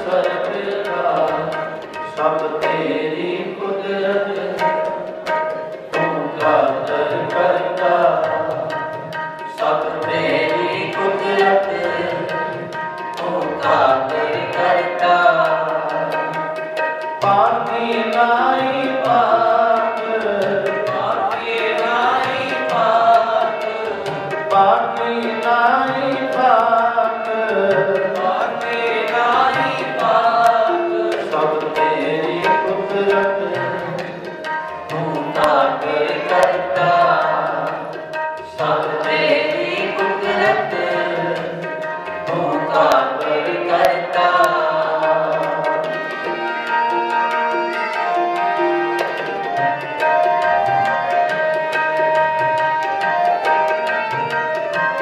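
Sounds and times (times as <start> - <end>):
harmoniums: 0.0 - 55.0
tabla drumming: 0.0 - 55.0
men singing a hymn: 2.2 - 4.6, 6.0 - 8.5, 9.6 - 12.4, 13.2 - 16.2, 17.3 - 34.2, 34.9 - 37.9, 38.6 - 41.6, 42.2 - 46.3.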